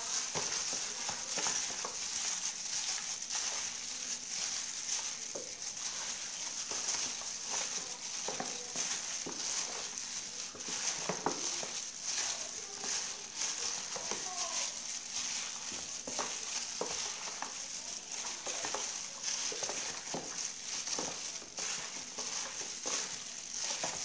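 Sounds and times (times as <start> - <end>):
plastic gloves crinkling: 0.0 - 24.0
wet meat squelching: 0.0 - 24.0.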